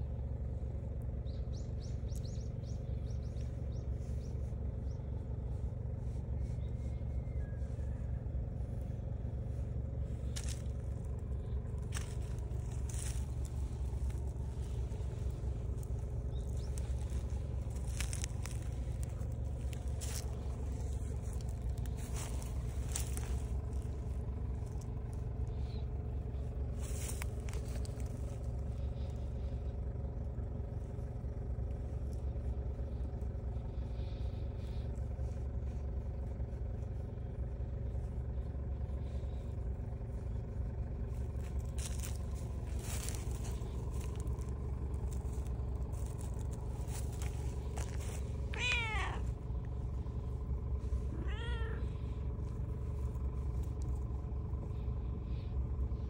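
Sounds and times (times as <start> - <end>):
low rumble: 0.0 - 56.0
cat meowing: 48.5 - 49.3, 51.1 - 51.9.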